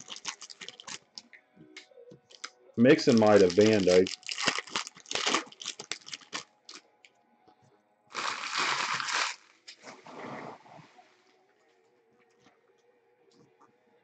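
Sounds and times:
foil wrapper crinkling and tearing: 0.0 - 1.2, 2.3 - 6.8, 8.1 - 9.5.

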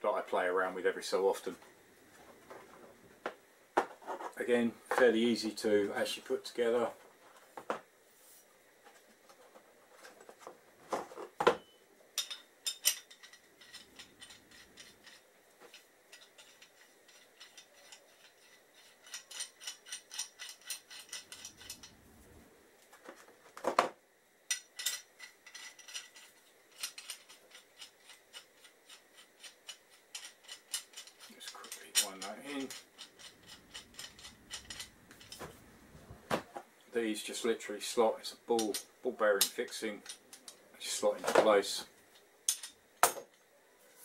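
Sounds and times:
metal parts clicking and clinking: 11.6 - 22.0, 24.5 - 35.6, 38.5 - 41.8, 42.5 - 43.4.

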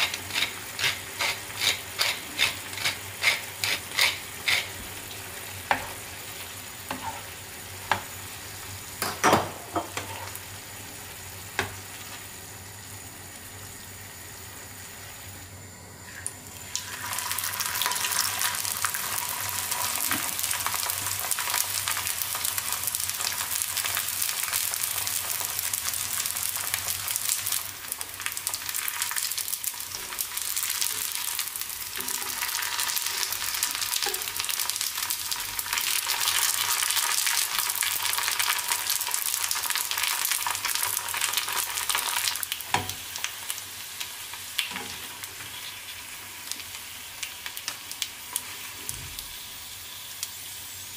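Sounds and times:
food frying in hot oil: 0.0 - 50.9.

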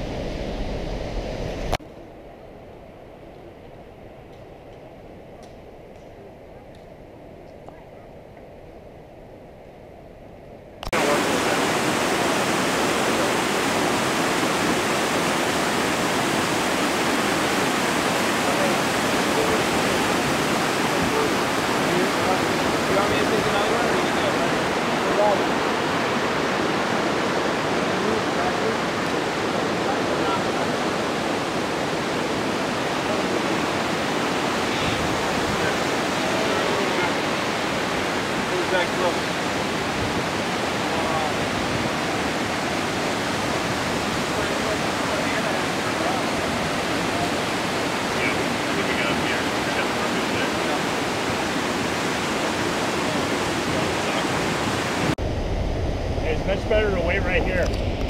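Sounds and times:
river rapids roaring: 10.9 - 55.2
rushing whitewater: 10.9 - 55.2.

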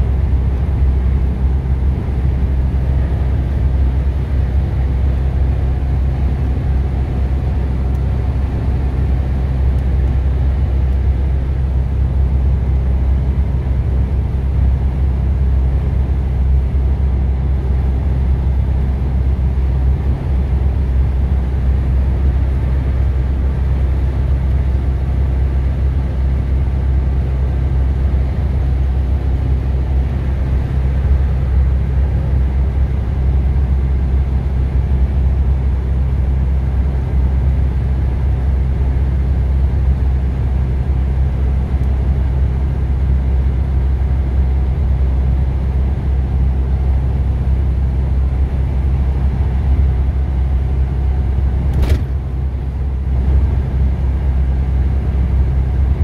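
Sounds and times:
heavy vehicle engine rumble: 0.0 - 56.0.

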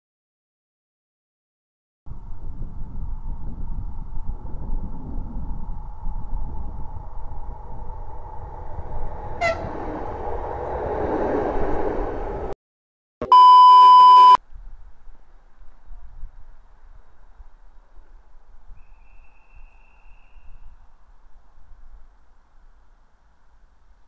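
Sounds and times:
electric train passing: 2.1 - 12.6
train horn toot: 9.4 - 9.9
steady bleep tone: 13.2 - 14.4.

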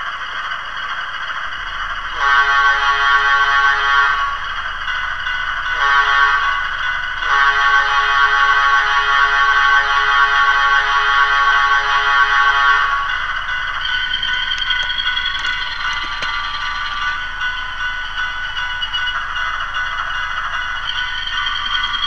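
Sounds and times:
model train horn blasts: 2.2 - 4.4, 5.8 - 6.6, 7.2 - 13.1.

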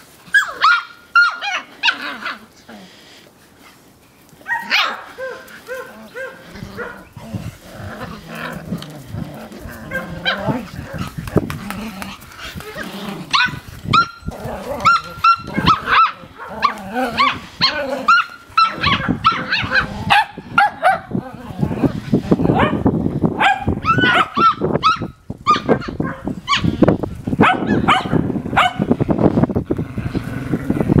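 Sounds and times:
puppy growling: 5.2 - 22.7, 29.7 - 31.0
puppies yipping: 12.6 - 21.0
puppy yelping: 12.7 - 21.0.

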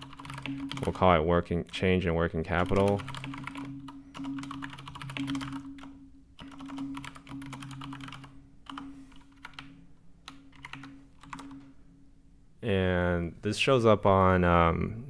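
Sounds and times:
typing on computer keyboard: 0.0 - 1.0, 2.5 - 11.7.

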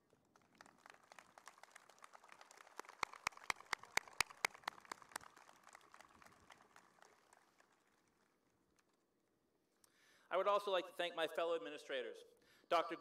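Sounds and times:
crowd applause: 0.0 - 8.4
person clapping close by: 0.6 - 7.2.

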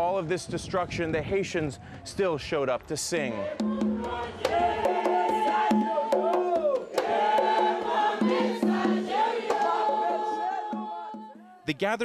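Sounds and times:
congregation singing: 3.0 - 11.6.

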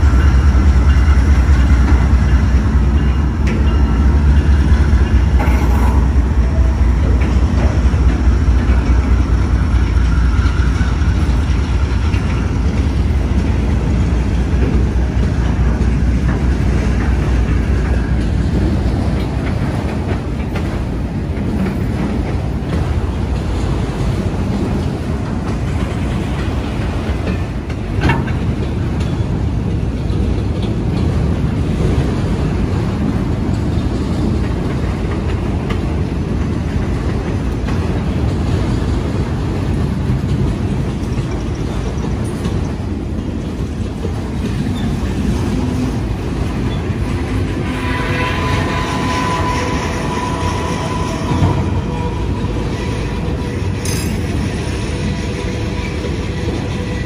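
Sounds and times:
train wheels rumbling and clacking: 0.0 - 57.0
high wheel squeal: 46.6 - 57.0.

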